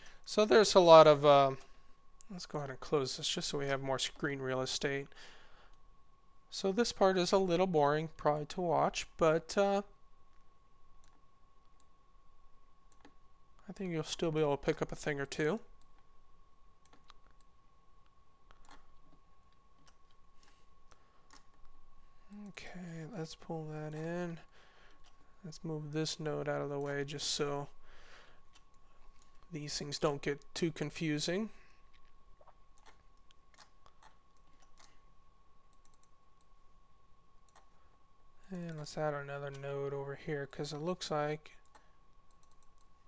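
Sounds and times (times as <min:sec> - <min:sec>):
faint steady hum: 0:00.0 - 0:43.0
faint steady whine: 0:00.0 - 0:43.0
computer mouse clicks: 0:16.8 - 0:17.5, 0:18.5 - 0:21.7, 0:32.8 - 0:35.0, 0:35.7 - 0:36.5, 0:41.6 - 0:42.9.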